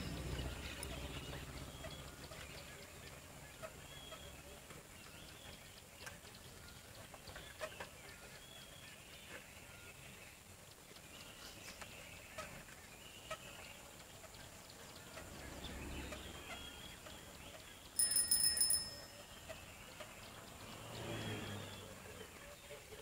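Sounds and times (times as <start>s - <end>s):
bicycle bell rattling trill: 18.0s - 19.5s.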